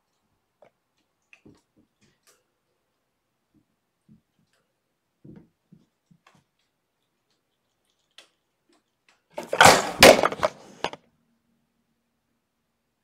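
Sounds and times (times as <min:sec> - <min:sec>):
camera clattering as it falls: 0:09.4 - 0:11.0.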